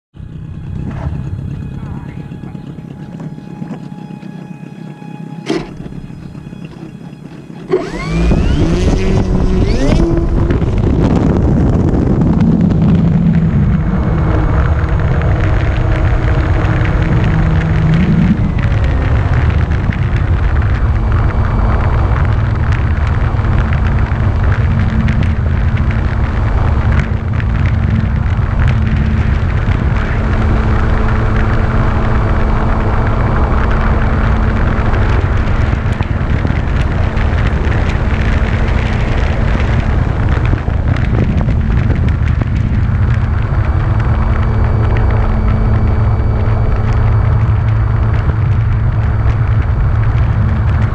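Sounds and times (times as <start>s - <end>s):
wind rush on microphone: 0.2s - 50.9s
model plane electric motor: 1.0s - 13.0s.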